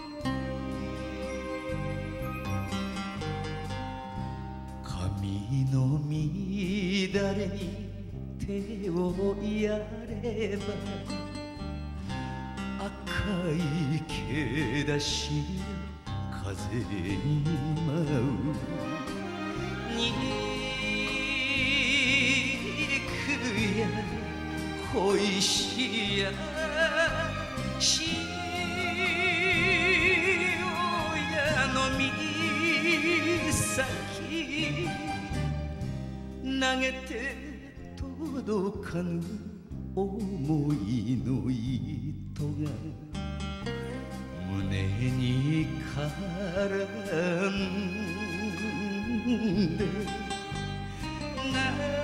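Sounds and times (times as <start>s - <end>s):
live backing band: 0.0s - 52.0s
man singing with wide vibrato: 4.2s - 43.2s, 43.8s - 52.0s
band accompaniment: 17.3s - 36.6s.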